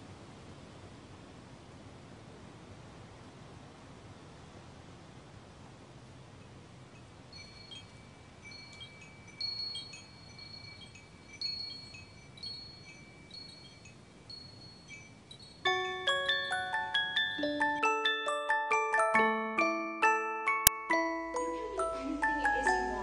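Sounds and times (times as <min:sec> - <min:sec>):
faint steady hiss: 0:00.0 - 0:18.1, 0:20.6 - 0:23.0
high chime tinkles: 0:07.0 - 0:23.0
glockenspiel melody: 0:07.3 - 0:23.0.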